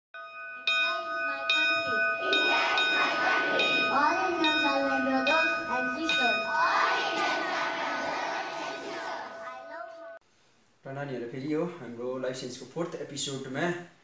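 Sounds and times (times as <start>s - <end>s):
chiming bell notes: 0.2s - 7.2s.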